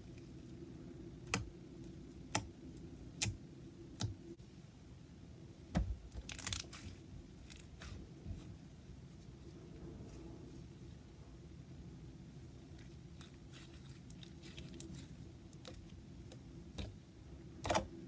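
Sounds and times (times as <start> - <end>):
faint low hum: 0.0 - 18.0
slime squelch: 12.6 - 17.0.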